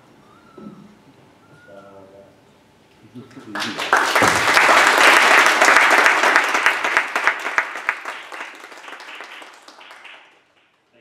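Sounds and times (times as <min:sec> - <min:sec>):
audience applauding: 0:03.3 - 0:10.9.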